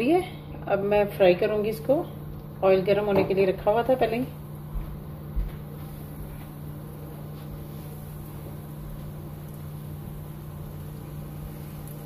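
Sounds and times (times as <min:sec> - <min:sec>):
steady low hum: 0:00.0 - 0:12.0
chicken sizzling in hot oil: 0:05.8 - 0:12.0.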